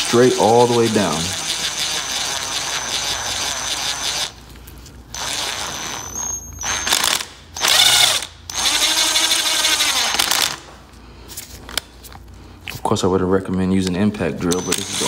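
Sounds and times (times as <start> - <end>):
power drill boring into metal: 5.2 - 10.6, 14.5 - 15.0.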